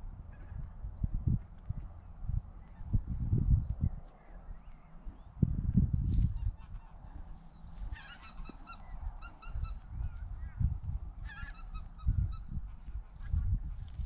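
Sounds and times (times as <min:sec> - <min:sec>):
geese honking: 0:06.6 - 0:09.8, 0:11.2 - 0:12.2.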